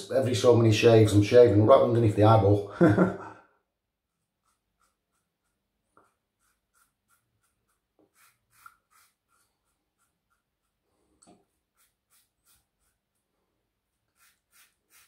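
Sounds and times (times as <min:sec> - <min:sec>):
razor scraping stubble: 0:04.0 - 0:13.2, 0:13.9 - 0:15.0.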